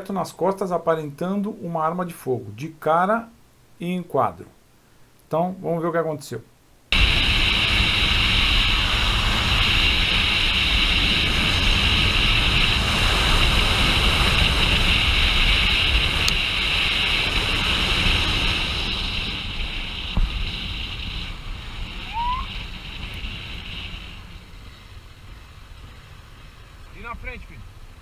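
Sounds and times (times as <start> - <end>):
motorcycle and road rumble: 6.9 - 28.0
wind rushing over microphone: 6.9 - 28.0.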